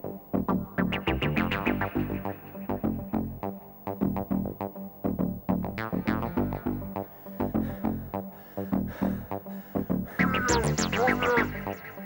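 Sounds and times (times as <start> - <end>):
steady low bass: 0.0 - 11.8.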